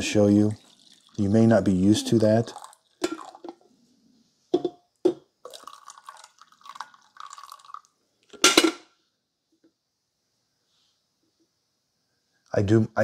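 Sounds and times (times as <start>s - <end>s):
coffee trickling and dripping: 0.0s - 3.7s, 5.1s - 8.4s.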